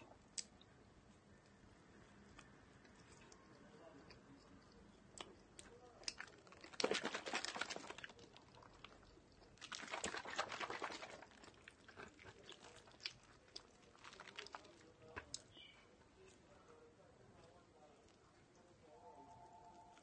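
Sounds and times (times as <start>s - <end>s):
crunchy chewing: 2.0s - 16.4s.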